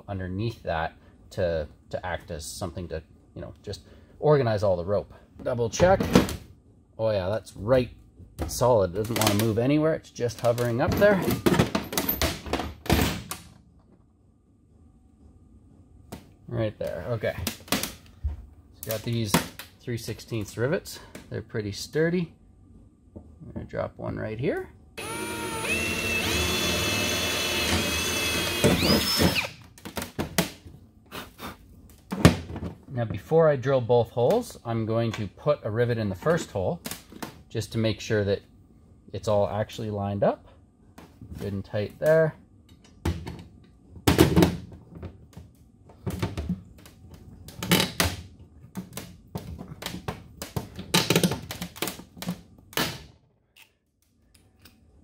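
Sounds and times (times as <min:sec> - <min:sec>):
cordless drill motor whining: 0:25.0 - 0:29.6.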